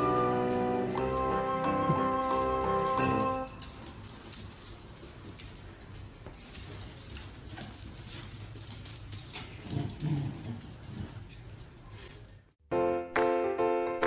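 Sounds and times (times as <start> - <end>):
dog claws clicking on tiles: 3.6 - 12.4.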